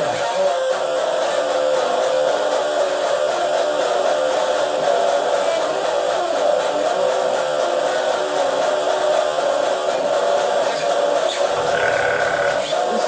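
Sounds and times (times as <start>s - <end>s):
electric guitar playing: 10.0s - 13.0s.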